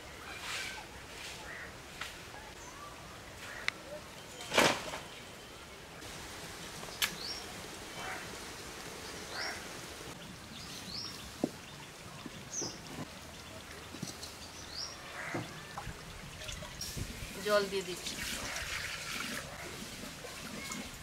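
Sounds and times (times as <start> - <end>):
birds chirping: 2.4 - 18.9.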